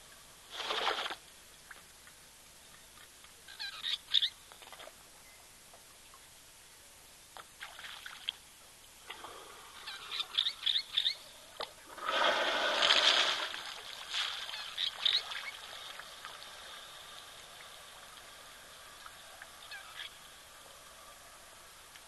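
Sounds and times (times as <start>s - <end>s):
short high bird calls: 9.8s - 11.3s, 19.6s - 20.2s.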